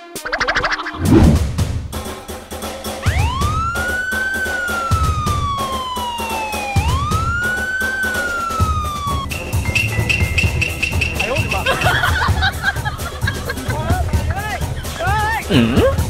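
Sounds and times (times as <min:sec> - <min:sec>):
background music with steady beat: 0:01.4 - 0:16.0
siren-like wail: 0:03.1 - 0:09.3.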